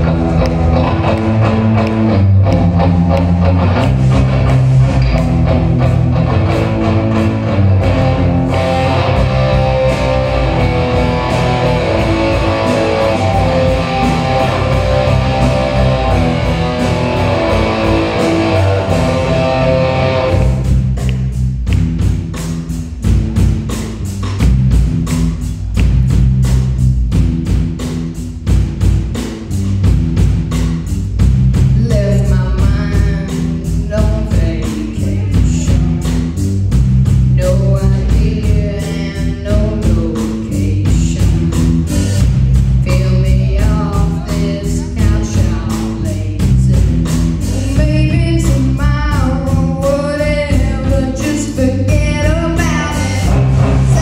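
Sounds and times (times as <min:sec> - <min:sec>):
distorted electric guitars: 0:00.0 - 0:54.0
drum kit: 0:00.0 - 0:54.0
low bass notes: 0:00.0 - 0:54.0
person singing: 0:31.8 - 0:36.2, 0:37.4 - 0:42.2, 0:42.9 - 0:54.0.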